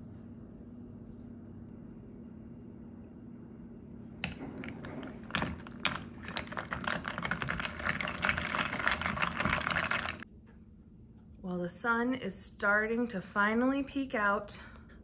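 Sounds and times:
low room hum: 0.0 - 15.0
spoon stirring iced drink: 4.3 - 10.2
ice cubes rattling in cup: 5.2 - 10.2.

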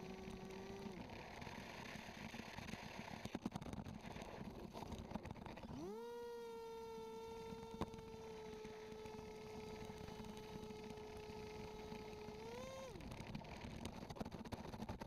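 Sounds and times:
model airboat motor whine: 0.0 - 2.6, 4.9 - 13.9.

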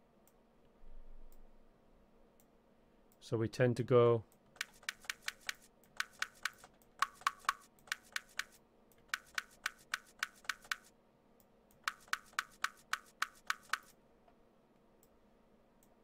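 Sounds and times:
faint steady hum: 0.0 - 16.0
mouse and keyboard clicks: 4.6 - 10.9, 11.8 - 14.0.

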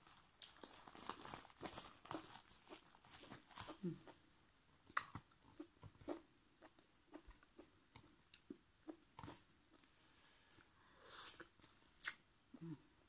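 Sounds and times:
chewing and mouth sounds: 4.9 - 9.9.

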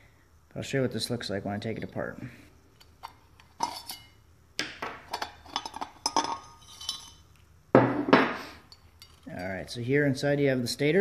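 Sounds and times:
metal clinks and scrapes: 2.7 - 4.2, 5.1 - 7.4, 8.6 - 9.7.

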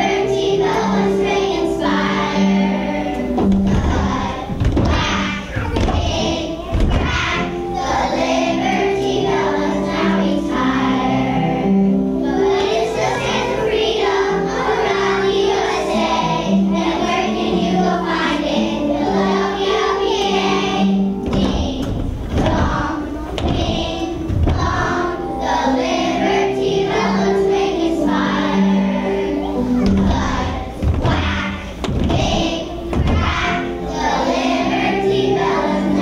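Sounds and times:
children's choir singing: 0.0 - 36.0
musical accompaniment: 0.0 - 36.0
low thumps: 3.3 - 8.1, 21.0 - 25.2, 29.7 - 34.3.

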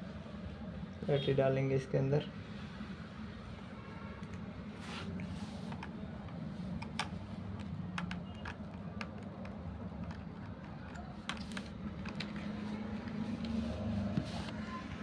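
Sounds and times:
screwdriver scraping on plastic: 5.7 - 12.6.

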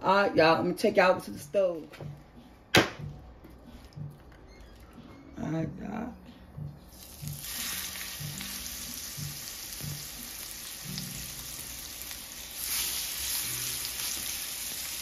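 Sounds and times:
steak sizzling in a skillet: 7.0 - 15.0.

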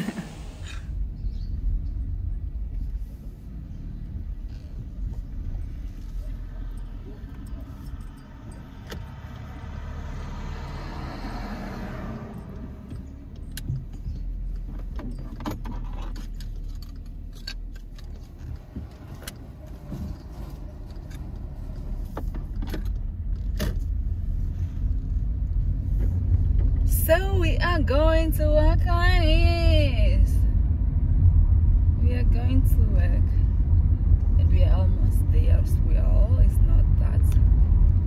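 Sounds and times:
car engine and road rumble: 0.0 - 38.0
light clicks and rattles: 12.4 - 24.0.

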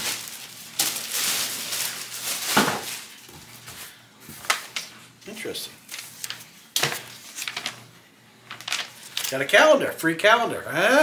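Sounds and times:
plastic wrapping crinkling: 0.0 - 4.9, 5.9 - 7.9, 8.5 - 9.6.

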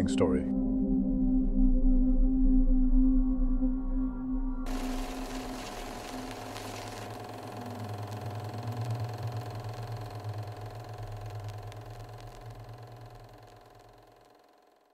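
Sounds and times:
fluttering machine-like hum: 4.7 - 14.9.

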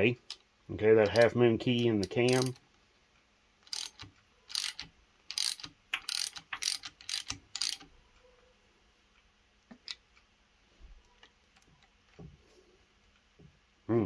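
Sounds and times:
hand ratchet clicking: 1.0 - 1.3, 2.0 - 2.6, 3.6 - 7.9.

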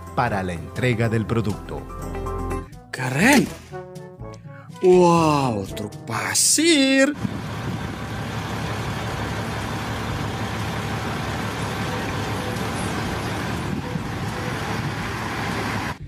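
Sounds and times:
diesel dump truck running: 7.0 - 16.0.

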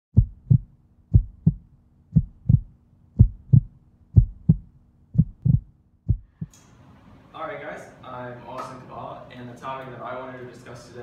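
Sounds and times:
heartbeat thumps: 0.1 - 6.5
faint steady hum: 0.2 - 11.0.

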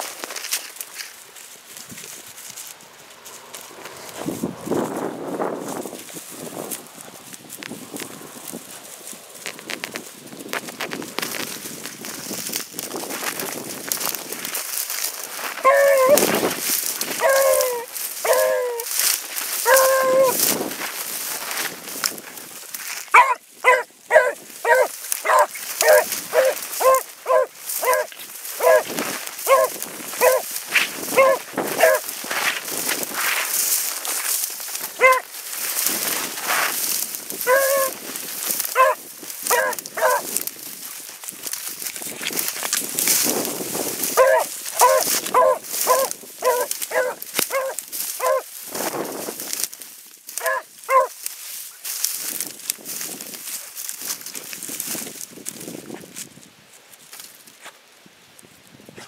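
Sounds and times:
dry brush rustling and crackling: 0.0 - 59.0
dog barking: 15.6 - 16.3, 17.2 - 18.9, 19.6 - 20.4, 23.1 - 30.5, 31.1 - 32.0, 35.0 - 35.3, 37.4 - 38.0, 38.7 - 40.3, 44.2 - 48.5, 50.4 - 51.2
hound baying: 15.6 - 16.4, 17.1 - 19.0, 19.6 - 20.5, 23.1 - 32.5, 34.6 - 35.3, 37.4 - 40.4, 44.0 - 48.5, 50.4 - 51.2.

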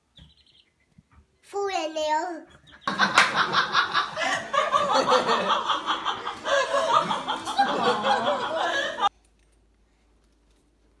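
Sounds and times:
people laughing: 2.8 - 9.1.

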